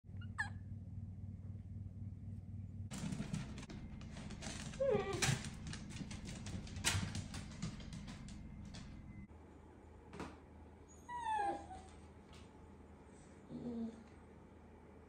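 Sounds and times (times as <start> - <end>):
low steady hum: 0.1 - 15.0
dog claws on wooden floor: 2.9 - 9.2.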